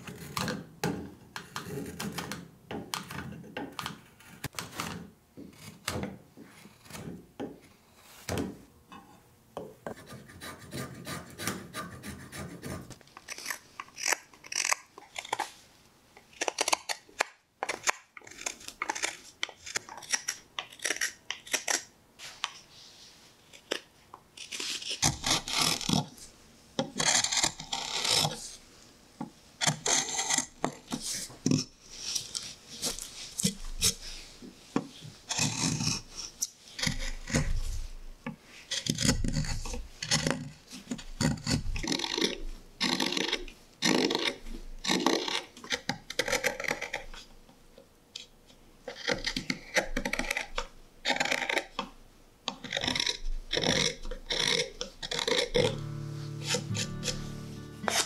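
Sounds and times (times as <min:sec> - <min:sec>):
gouge scraping wood: 0:09.9 - 0:15.3, 0:26.9 - 0:28.6, 0:29.6 - 0:34.1, 0:52.6 - 0:58.0.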